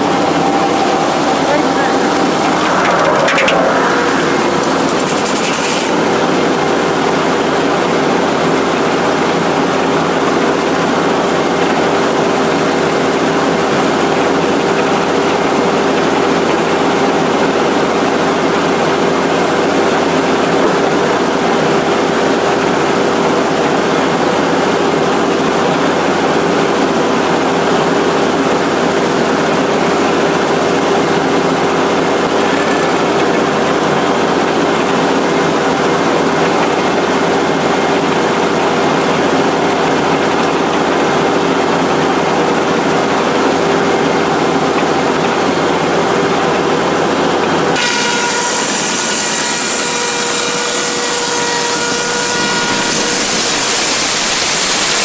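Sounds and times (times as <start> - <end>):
sawmill blade spinning hum: 0.0 - 6.2.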